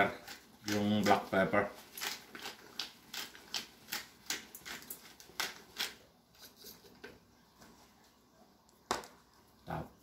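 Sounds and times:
peppercorns crunching in paper towel: 0.0 - 6.0.

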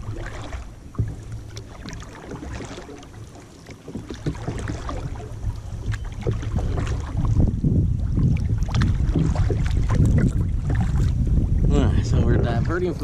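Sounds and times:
paddle splashing in water: 0.0 - 11.7
wind rumble on microphone: 0.0 - 13.0.

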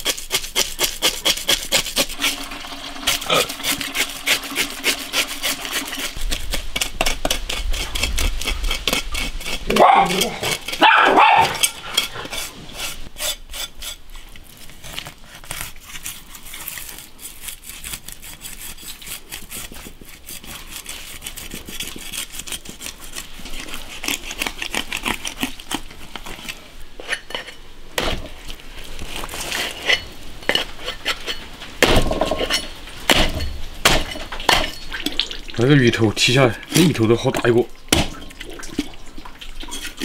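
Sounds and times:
blade scraping fish scales: 0.0 - 31.5.

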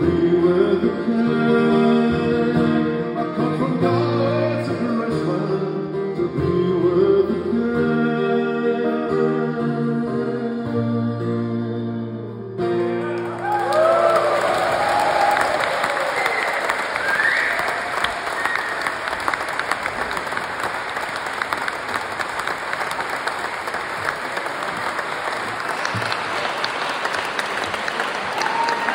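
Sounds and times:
audience applauding: 13.0 - 28.9.

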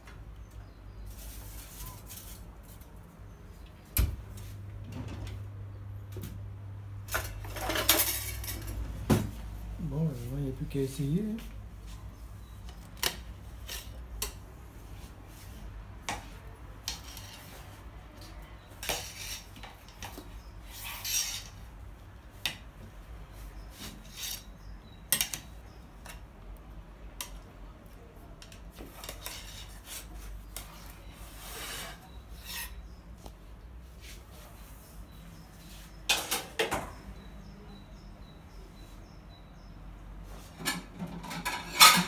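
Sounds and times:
utensils scraping against dishes: 7.1 - 8.8, 13.6 - 14.4, 16.9 - 17.7, 18.7 - 21.6, 23.8 - 24.6, 28.9 - 33.0, 40.6 - 42.0.

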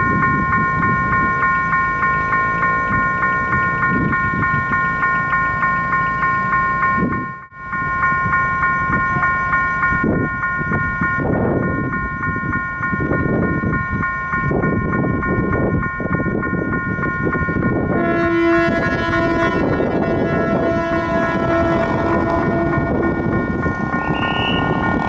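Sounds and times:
level crossing warning bell: 0.0 - 25.0
train rumbling: 0.0 - 25.0.

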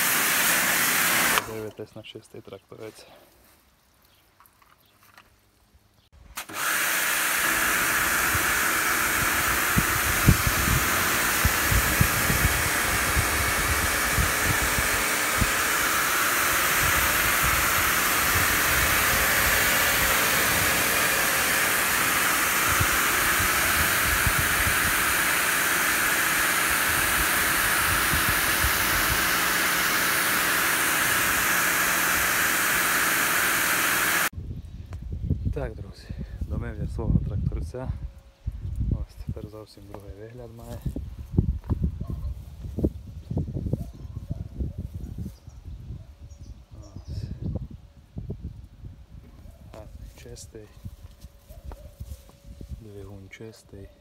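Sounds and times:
pressure washer hiss: 0.0 - 1.6, 6.4 - 34.3.

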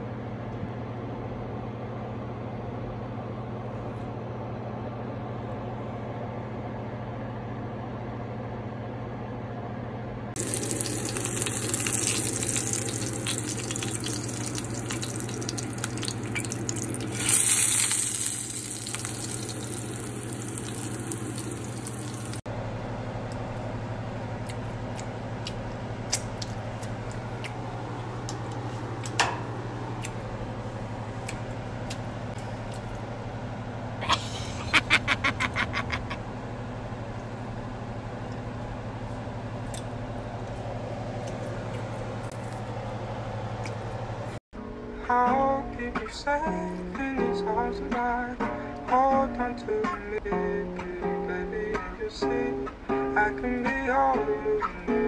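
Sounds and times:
steady low hum: 0.0 - 54.6
fish sizzling in hot oil: 10.4 - 22.4.

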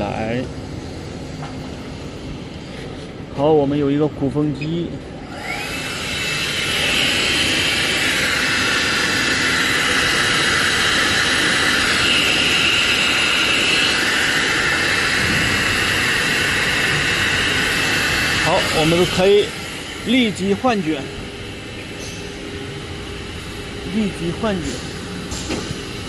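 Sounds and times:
extraction blower air rush: 5.2 - 26.0.

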